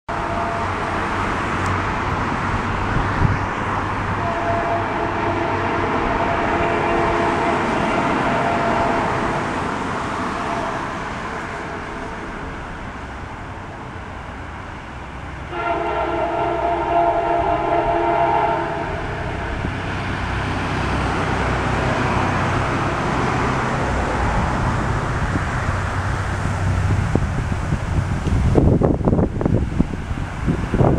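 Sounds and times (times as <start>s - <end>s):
distant train horn blasts: 0.1s - 1.8s, 4.1s - 12.6s, 15.4s - 22.6s.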